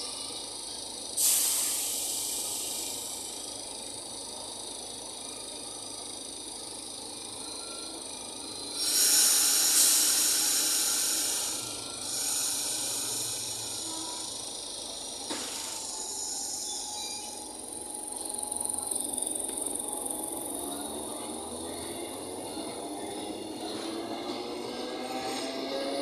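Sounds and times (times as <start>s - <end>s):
train pulling away: 0.0s - 26.0s
compressed air hiss: 1.2s - 3.2s, 8.8s - 14.4s, 15.2s - 16.7s.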